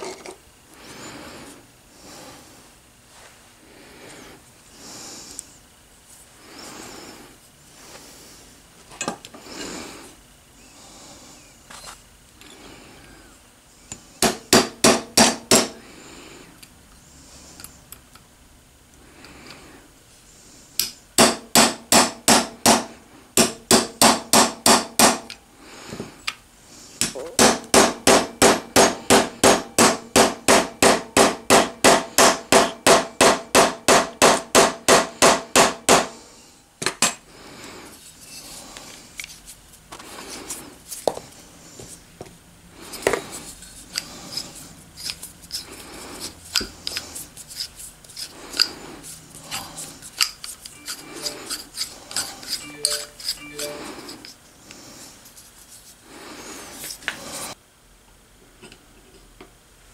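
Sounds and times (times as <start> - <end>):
hammer tapping metal: 27.1 - 36.1, 50.8 - 53.8.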